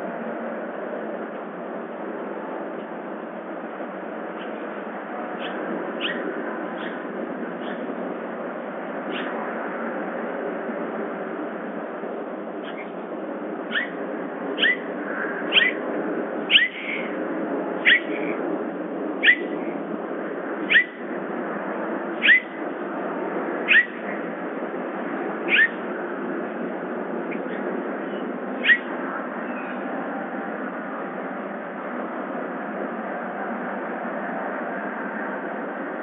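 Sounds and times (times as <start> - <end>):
bobcat chirping calls: 5.4 - 6.2, 13.7 - 14.0, 14.6 - 14.8, 15.5 - 15.8, 16.5 - 17.1, 17.8 - 18.1, 19.2 - 19.5, 20.7 - 20.9, 22.2 - 22.5, 23.7 - 24.0, 25.5 - 25.8, 28.6 - 28.9.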